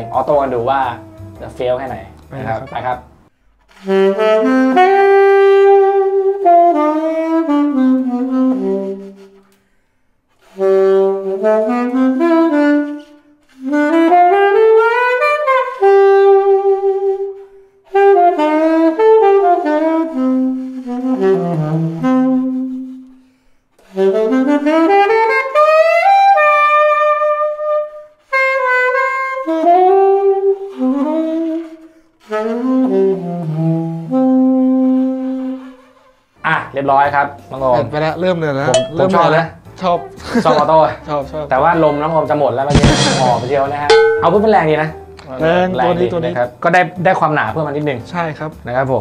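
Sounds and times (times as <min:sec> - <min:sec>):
alto saxophone melody: 0:00.1 - 0:01.6, 0:03.7 - 0:09.4, 0:10.4 - 0:35.9.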